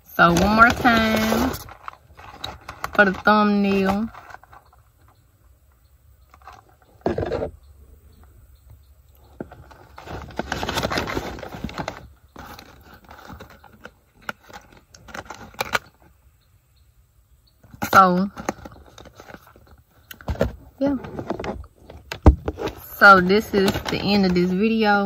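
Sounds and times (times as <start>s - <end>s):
paper bag rustling: 0.0s - 4.6s, 9.5s - 15.9s.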